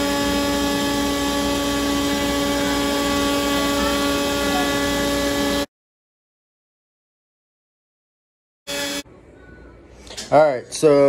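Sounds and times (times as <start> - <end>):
router carving wood whine: 0.0 - 5.7, 8.7 - 9.0.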